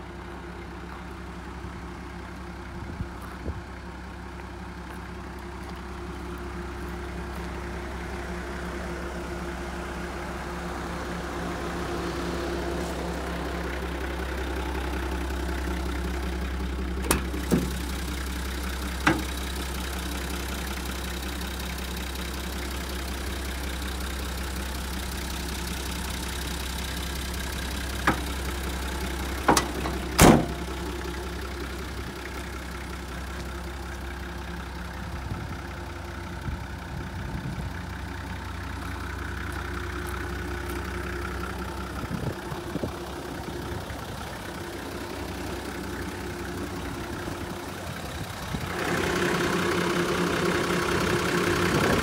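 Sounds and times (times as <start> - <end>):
diesel engine idling: 0.0 - 52.0
sharp clicks and knocks: 17.0 - 17.8, 19.0 - 19.4, 29.4 - 30.7.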